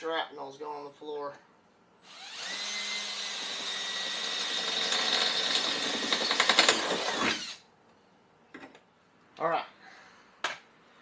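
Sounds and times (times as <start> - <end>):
power drill whining: 2.0 - 7.6.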